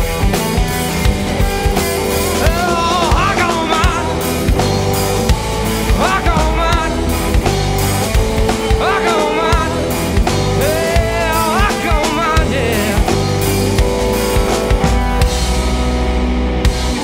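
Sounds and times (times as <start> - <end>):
drum kit: 0.0 - 17.0
electric bass: 0.0 - 17.0
person singing: 1.6 - 13.6.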